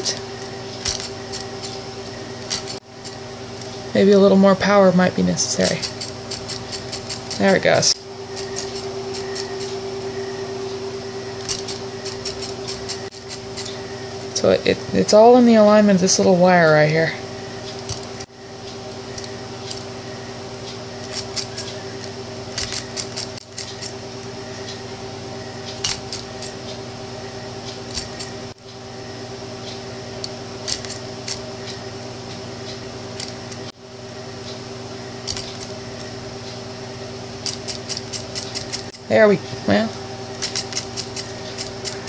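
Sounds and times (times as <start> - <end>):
electrical hum: 0.0 - 42.0
solenoid engine clicking: 10.6 - 14.0, 20.6 - 28.8, 40.4 - 42.0.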